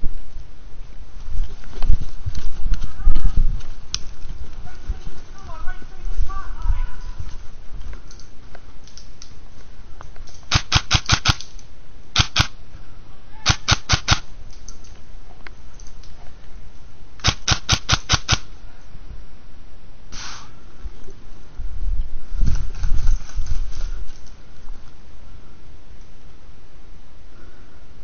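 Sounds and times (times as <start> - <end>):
airsoft rifle rapid shots: 10.5 - 11.5, 12.2 - 12.6, 13.4 - 14.3, 17.2 - 18.5
brief hiss: 20.1 - 20.6.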